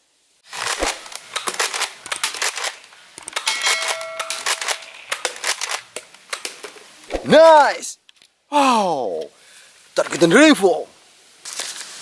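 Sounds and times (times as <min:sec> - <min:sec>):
toy blaster clicks and clatter: 0:00.5 - 0:05.8
metallic ring of can hit: 0:03.5 - 0:04.9.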